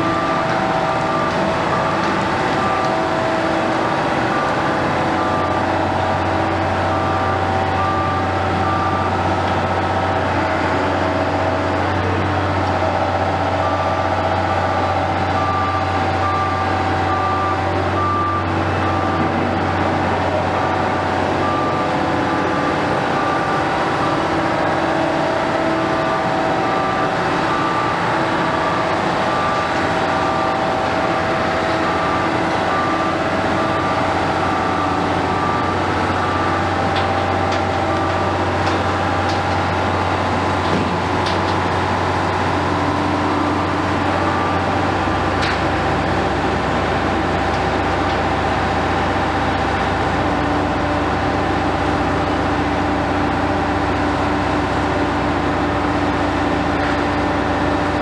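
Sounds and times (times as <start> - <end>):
diesel construction machinery drone: 0.0 - 58.0
reversing alarm beeping: 0.0 - 58.0.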